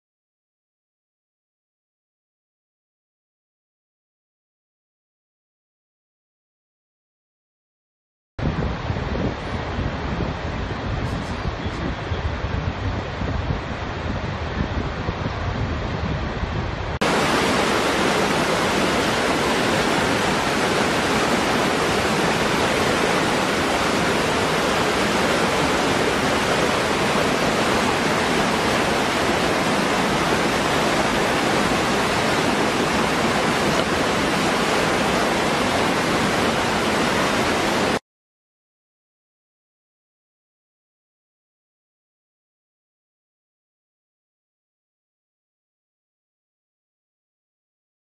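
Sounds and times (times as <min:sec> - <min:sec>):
waterfall pouring into pool: 0:17.0 - 0:38.0.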